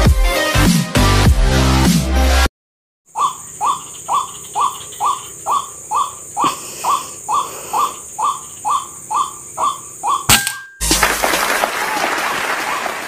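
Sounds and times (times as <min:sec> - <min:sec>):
waterhen calling: 0:03.1 - 0:10.6.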